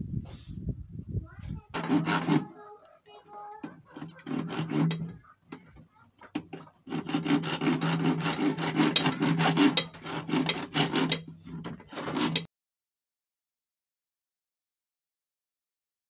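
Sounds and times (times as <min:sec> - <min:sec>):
hand saw rasping on plastic pipe: 0:01.7 - 0:02.7, 0:03.4 - 0:12.5.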